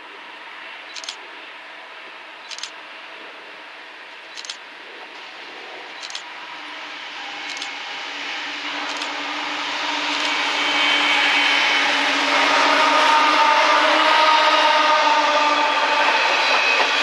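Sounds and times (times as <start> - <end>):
diesel locomotive engines humming: 0.0 - 17.0
wheel-on-rail noise: 4.3 - 17.0.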